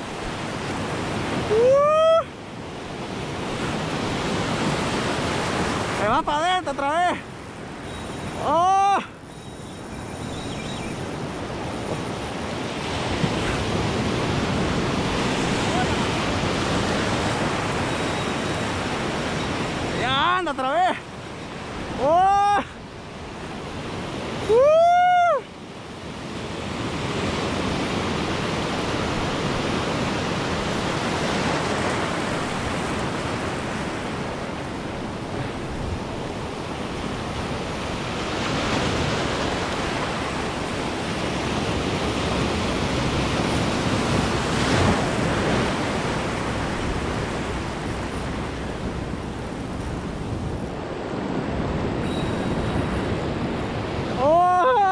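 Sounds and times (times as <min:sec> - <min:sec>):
ocean surf over rocks: 0:00.0 - 0:54.9
man crying out: 0:01.5 - 0:02.3, 0:08.4 - 0:09.2, 0:22.0 - 0:22.8, 0:24.4 - 0:25.4, 0:54.2 - 0:54.9
wind on microphone: 0:26.2 - 0:54.9.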